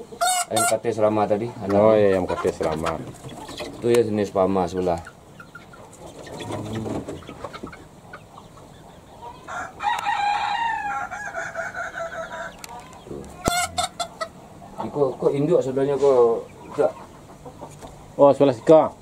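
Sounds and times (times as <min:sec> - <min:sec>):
rooster crowing: 0:09.5 - 0:12.7.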